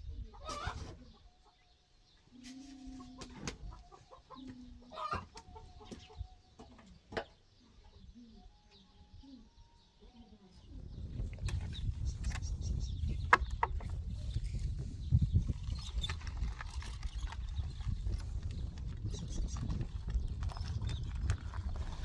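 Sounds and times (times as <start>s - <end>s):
chickens clucking: 0.1s - 1.7s, 2.3s - 9.5s.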